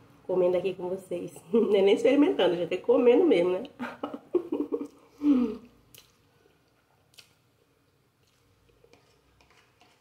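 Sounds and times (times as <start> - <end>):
soft wet chewing: 4.7 - 10.0.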